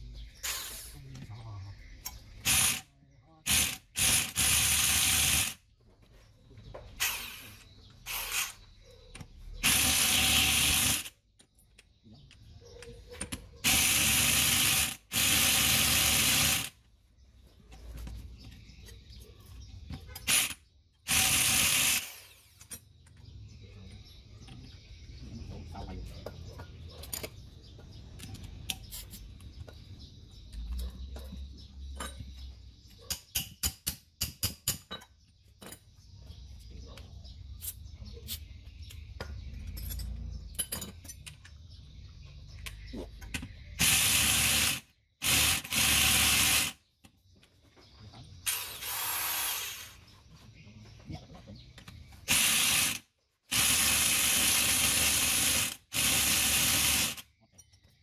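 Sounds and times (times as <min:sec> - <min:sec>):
loud hissing blasts: 0:00.4 - 0:01.0, 0:48.4 - 0:50.0
tools and metal parts knocking: 0:09.2 - 0:15.0, 0:30.5 - 0:36.0, 0:39.2 - 0:41.6.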